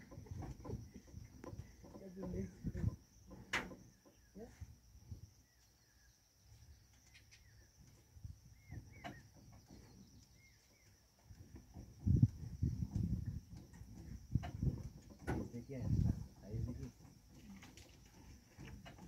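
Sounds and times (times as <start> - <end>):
soft bird chirps: 0.2 - 12.6.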